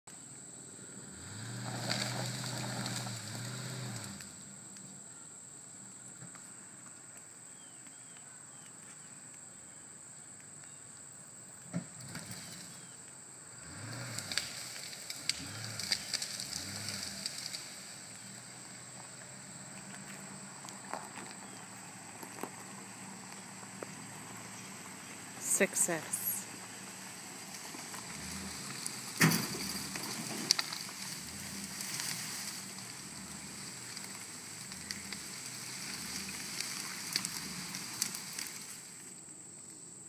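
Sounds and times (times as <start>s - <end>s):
insects buzzing: 0.2s - 40.0s
truck engine revving hard: 0.9s - 4.4s, 13.5s - 17.9s, 26.8s - 38.7s
sharp exhaust cracks: 13.6s - 21.0s, 21.7s - 39.2s.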